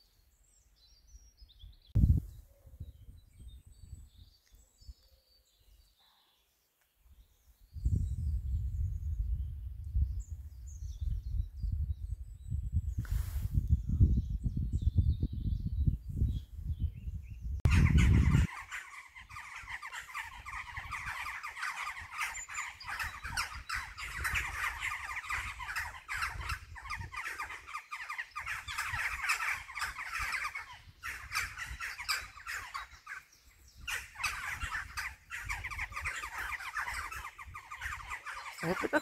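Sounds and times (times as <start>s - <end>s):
colony of birds calling: 17.7s - 39.0s.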